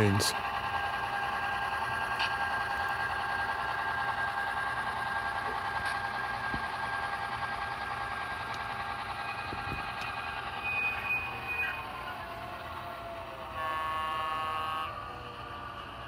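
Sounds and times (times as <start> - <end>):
model locomotive engine sound: 0.0 - 16.0
locomotive horn blast: 13.4 - 15.3.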